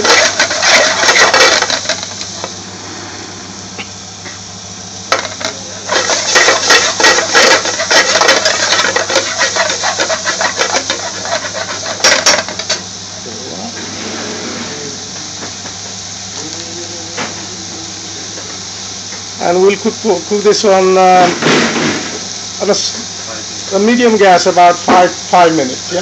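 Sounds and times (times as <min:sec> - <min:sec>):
metal spoon scraping a pan: 0:00.0 - 0:02.1, 0:05.2 - 0:12.8
hot pan hissing: 0:00.0 - 0:26.0.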